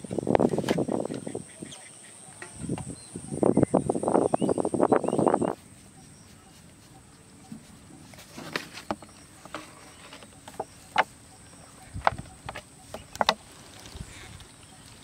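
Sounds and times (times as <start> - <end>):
plastic bottle being handled: 5.6 - 14.5.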